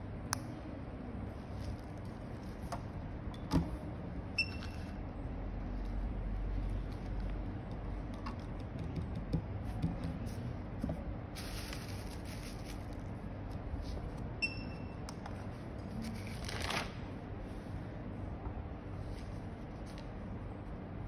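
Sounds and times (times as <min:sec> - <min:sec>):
plastic and paper rustling: 0:11.3 - 0:13.2, 0:15.8 - 0:17.0.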